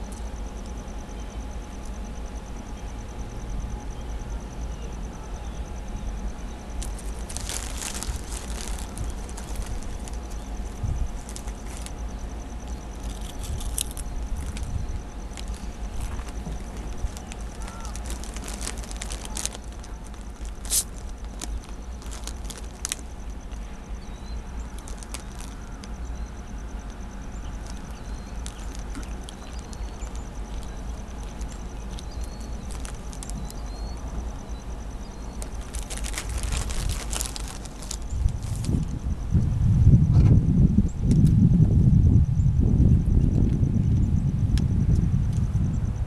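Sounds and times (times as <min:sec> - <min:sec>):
distant freight train rumble: 0:02.4 - 0:46.0
faint high chirps: 0:02.6 - 0:36.9
crackles: 0:05.7 - 0:39.3.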